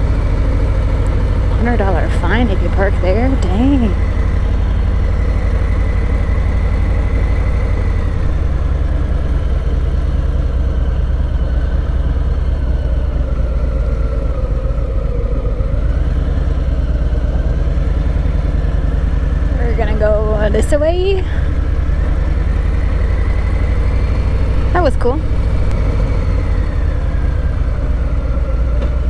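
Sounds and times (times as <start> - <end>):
motorcycle engine idling: 0.0 - 29.0.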